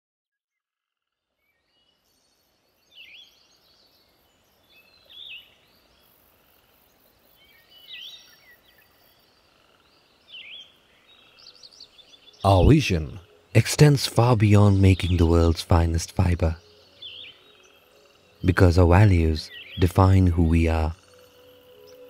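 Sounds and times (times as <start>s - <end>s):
soft steady hiss: 1.4s - 22.0s
birds calling: 7.4s - 22.0s.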